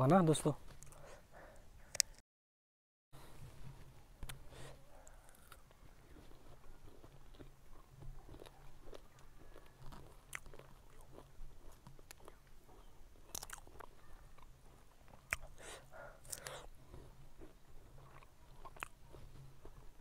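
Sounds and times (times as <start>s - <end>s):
person biting and chewing fruit: 4.2s - 20.0s.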